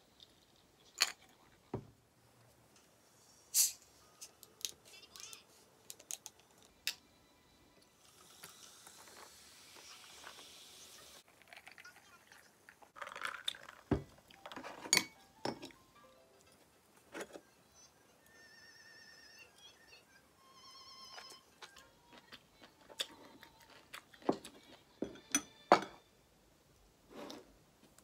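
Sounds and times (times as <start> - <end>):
bottle opening with gas hiss: 3.5 - 3.9
soda poured over ice fizzing: 8.0 - 12.2
glass and tableware clicks: 14.8 - 15.8.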